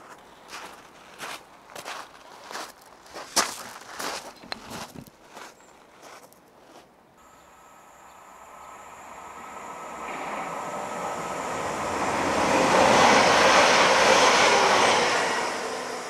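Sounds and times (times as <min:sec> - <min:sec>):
train wheels on rails: 0:07.2 - 0:16.0.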